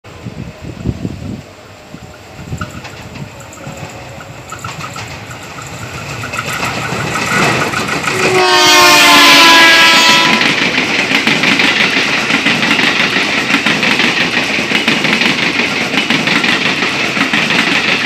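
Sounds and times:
electric train passing: 0:00.1 - 0:18.0
train horn blast: 0:08.1 - 0:10.6.

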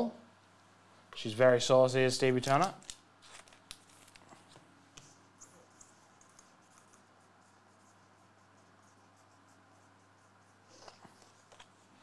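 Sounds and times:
faint room hum: 0:00.0 - 0:12.0.

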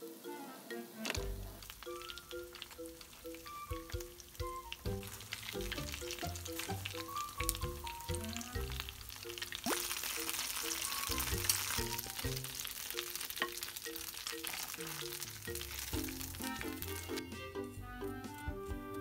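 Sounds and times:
oil sizzling and crackling: 0:01.0 - 0:18.4.

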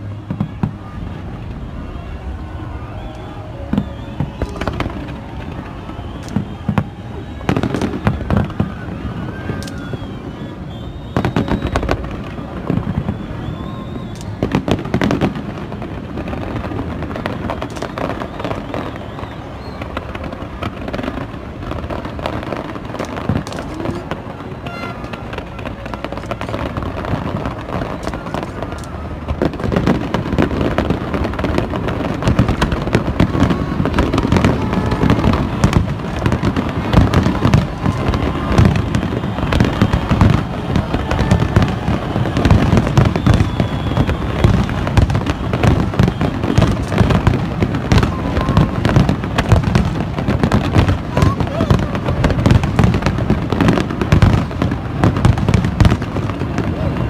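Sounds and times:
fireworks bangs and crackling: 0:00.0 - 0:57.0.

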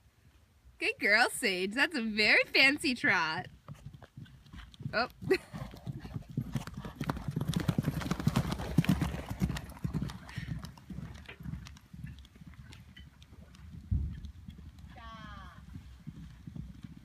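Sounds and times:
horse hoofbeats: 0:01.9 - 0:17.0.

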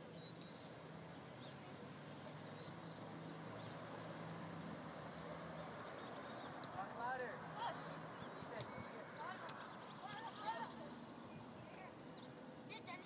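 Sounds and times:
faint bird chirps: 0:00.0 - 0:04.1.

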